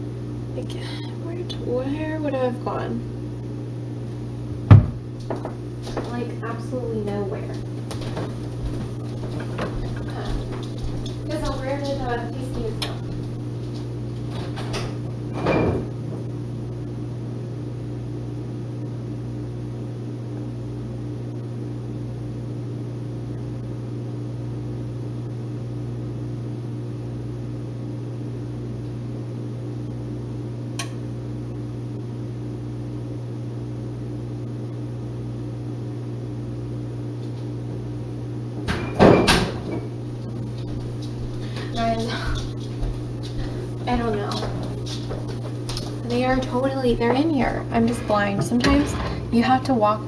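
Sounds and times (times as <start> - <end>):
kitchen appliance electrical hum: 0.0 - 50.0
knock: 4.7 - 5.6.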